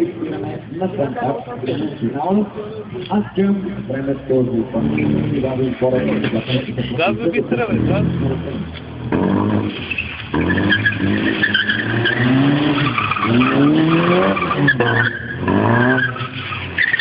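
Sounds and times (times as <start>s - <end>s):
car engine revving hard: 4.6s - 17.0s
tyres squealing and skidding: 4.8s - 17.0s.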